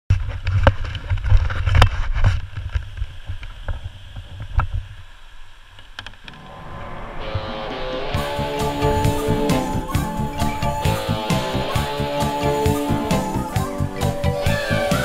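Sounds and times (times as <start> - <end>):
music: 6.3 - 15.0.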